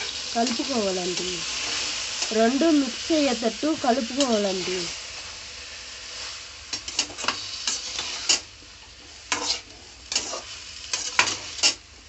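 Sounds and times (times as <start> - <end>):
oil frying sizzle: 0.0 - 12.0
metal spoon scraping a pan: 6.2 - 11.8.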